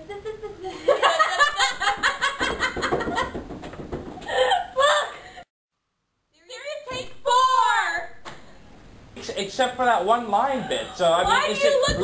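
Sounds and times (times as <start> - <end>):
women laughing hard: 0.0 - 3.4, 4.2 - 5.4.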